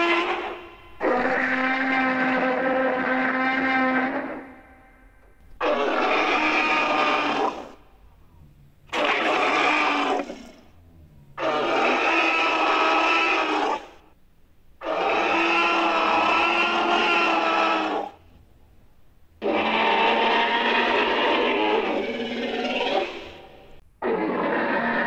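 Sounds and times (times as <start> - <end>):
dinosaur bellows: 0.0 - 4.9, 5.6 - 7.8, 8.9 - 14.0, 14.8 - 18.2, 19.4 - 25.0.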